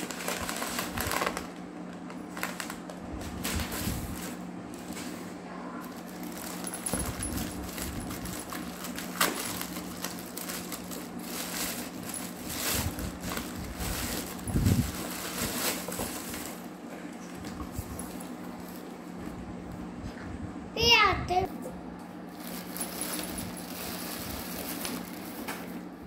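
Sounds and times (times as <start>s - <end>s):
plastic bags rustling: 0.0s - 18.9s, 22.3s - 25.9s.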